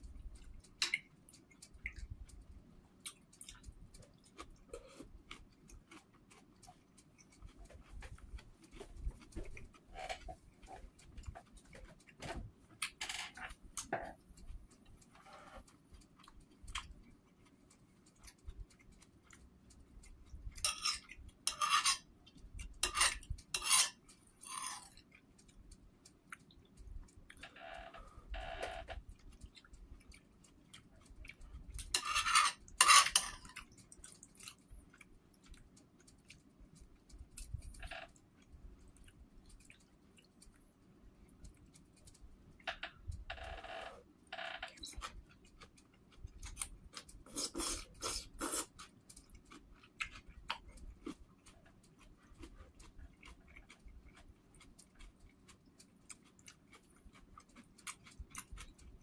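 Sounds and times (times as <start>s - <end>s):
metal spoon scraping a bowl: 20.6s - 22.1s, 22.8s - 25.0s, 31.8s - 33.5s
slurping: 47.2s - 48.9s.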